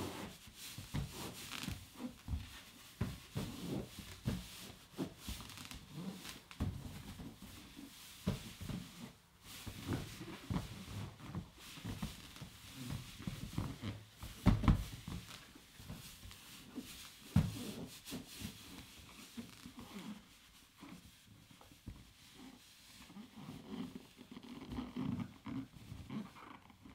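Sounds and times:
balloon rubbing and bumping: 0.0 - 21.1.

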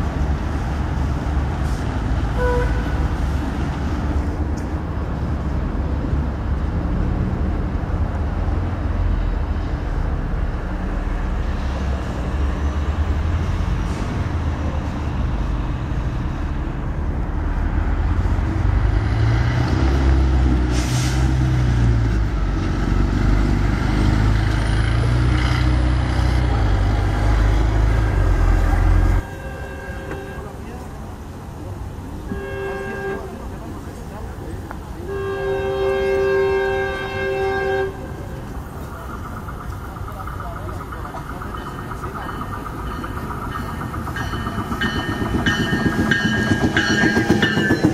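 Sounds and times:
diesel engine rumbling: 0.0 - 47.9
short hiss: 20.7 - 21.3.

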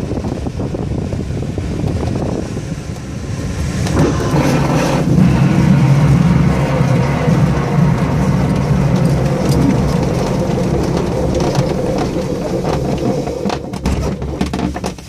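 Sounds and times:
wheel rumbling over grass: 1.6 - 15.0
airframe rattling: 1.8 - 15.0
knocks: 9.0 - 15.0.

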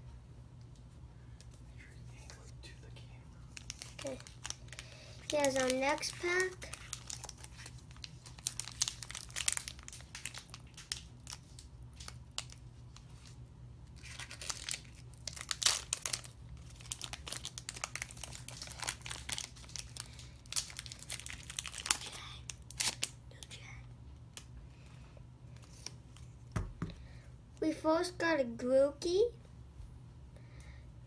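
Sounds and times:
foil wrapper crinkling and tearing: 3.5 - 23.2.

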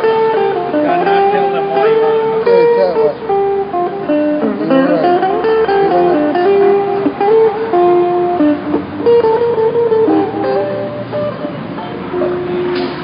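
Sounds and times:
plucked guitar melody: 0.0 - 13.0.

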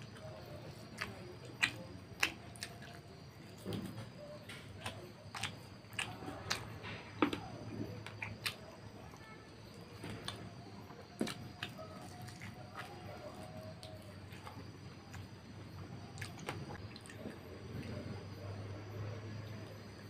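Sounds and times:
fingers squishing rice: 0.0 - 17.3
man chewing food: 0.0 - 18.6.

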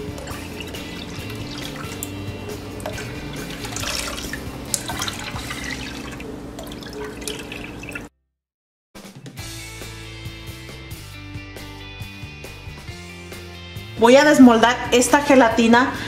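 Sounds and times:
water pouring and splashing: 0.0 - 8.1.

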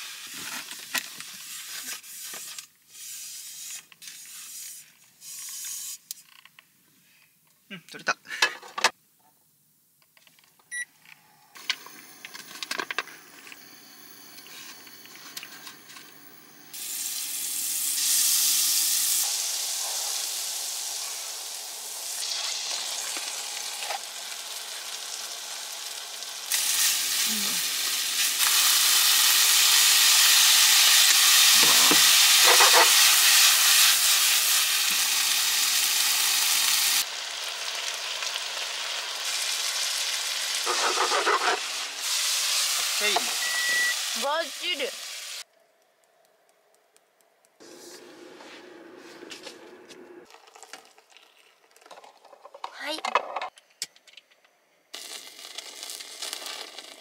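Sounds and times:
food sizzling in a frying pan: 0.0 - 6.0, 16.5 - 45.4, 55.0 - 57.0.

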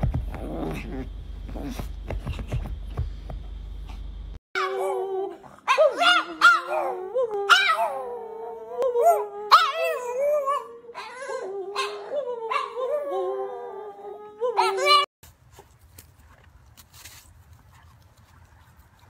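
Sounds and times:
dog howling: 4.6 - 15.1.

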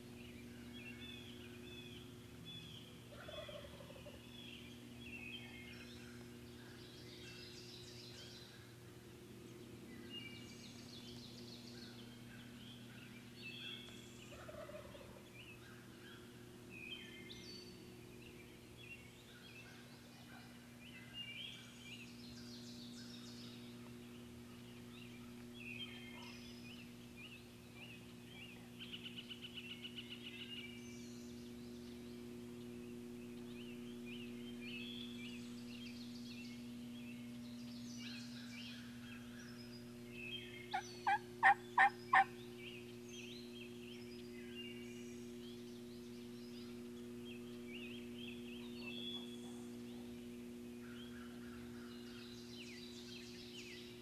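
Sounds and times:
songbirds chirping: 0.0 - 54.0
turkey yelping: 3.1 - 4.2, 14.4 - 15.2, 40.7 - 42.3.

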